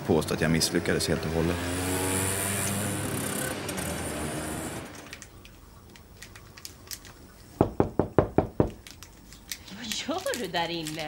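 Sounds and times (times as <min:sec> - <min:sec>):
rapid knocking on a door: 0:07.6 - 0:08.8.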